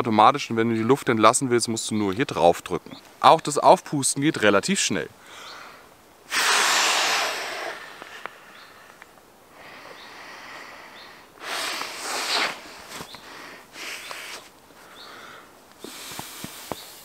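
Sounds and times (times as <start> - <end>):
puffs of breath into valve: 5.2 - 9.0, 9.6 - 17.0
breaths drawn in: 6.3 - 9.0, 9.6 - 17.0.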